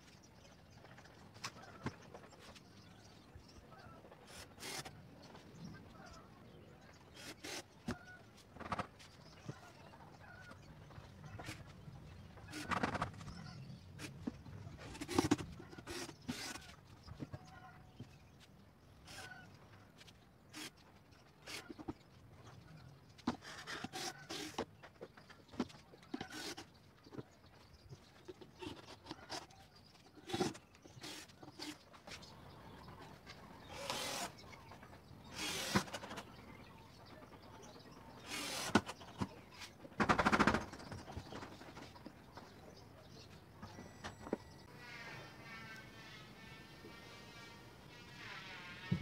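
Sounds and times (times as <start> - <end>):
cordless drill driving screws: 15.0 - 16.6, 33.7 - 34.4, 35.3 - 36.2, 38.2 - 39.0.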